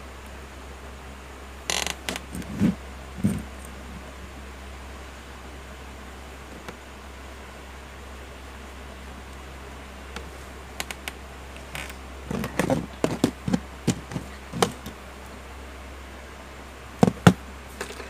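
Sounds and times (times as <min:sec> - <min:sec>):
light taps on rubber mat: 0:12.3 - 0:15.0.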